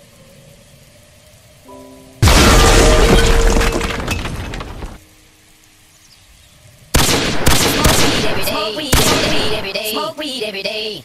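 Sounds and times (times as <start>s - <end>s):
boulder crashing onto paving: 2.2s - 5.0s
debris shattering: 2.2s - 5.0s
person speaking: 7.6s - 11.0s.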